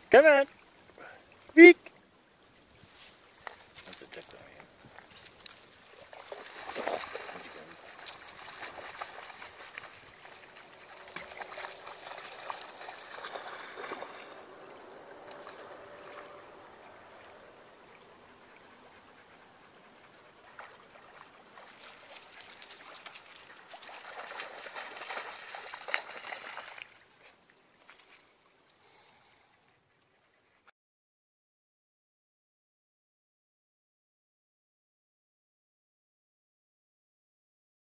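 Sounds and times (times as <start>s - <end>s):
dog wading through water: 0.4s - 28.8s.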